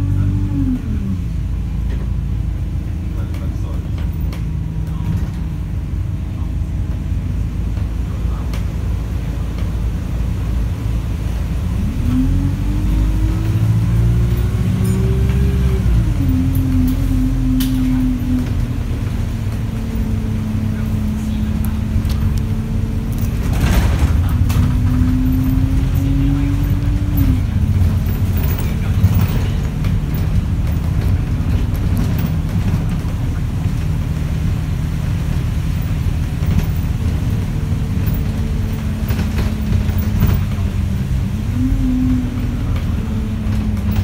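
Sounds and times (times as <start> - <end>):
bus engine and road rumble: 0.0 - 44.0
knocks and rattles: 21.6 - 41.3, 42.3 - 44.0.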